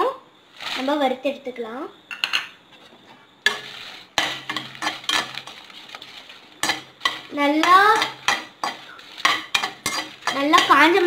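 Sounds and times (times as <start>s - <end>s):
chillies stirred in a pan: 0.5s - 1.2s, 3.4s - 11.0s
metal spatula clanking and scraping: 3.4s - 11.0s.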